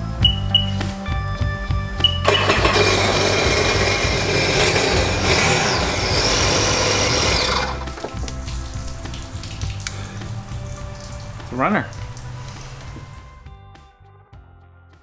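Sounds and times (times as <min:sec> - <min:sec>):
background music: 0:00.0 - 0:15.0
engine running with even whir: 0:02.0 - 0:08.0.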